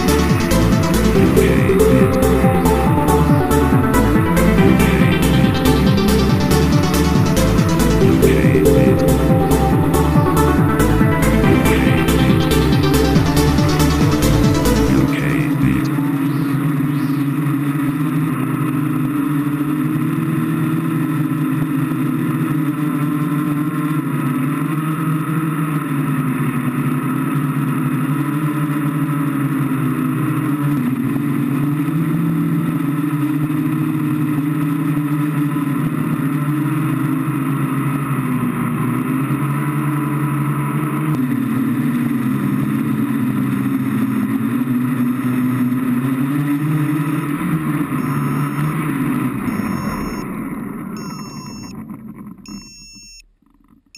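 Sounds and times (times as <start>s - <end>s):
drone propellers buzzing: 0.0s - 26.2s, 30.4s - 52.6s.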